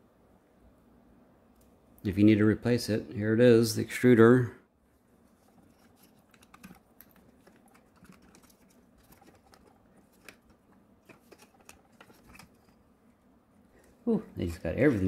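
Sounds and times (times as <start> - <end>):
faint clicks of handling plastic: 5.3 - 12.9.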